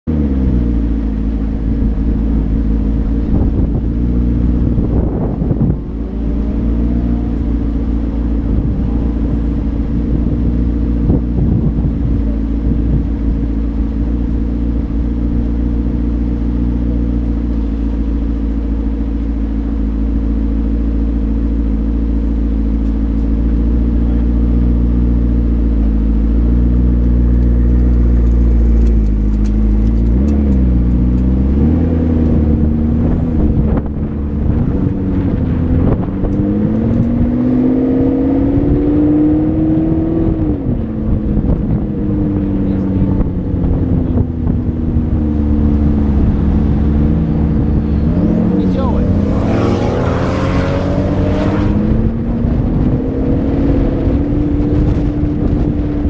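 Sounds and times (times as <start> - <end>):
car engine idling: 0.1 - 56.0.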